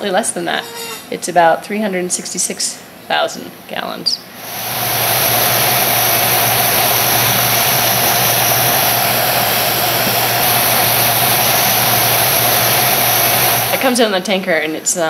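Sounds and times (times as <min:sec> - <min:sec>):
turboprop engines running: 0:04.4 - 0:14.4.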